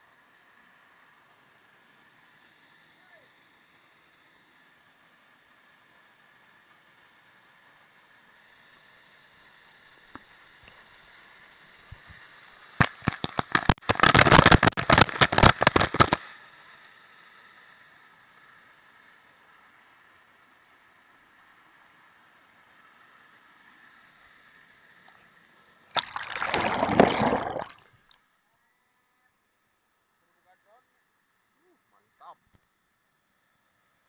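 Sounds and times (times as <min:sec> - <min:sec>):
water splashing on microphone: 0:25.9 - 0:27.8.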